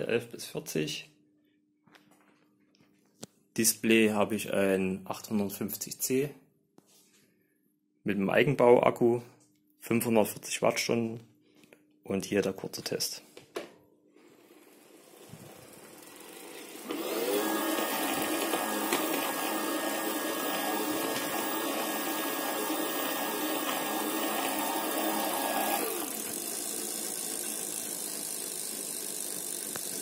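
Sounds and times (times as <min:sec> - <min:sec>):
bicycle chain noise: 0:14.3 - 0:16.9, 0:25.7 - 0:30.0
electric bike motor whine: 0:14.3 - 0:30.0.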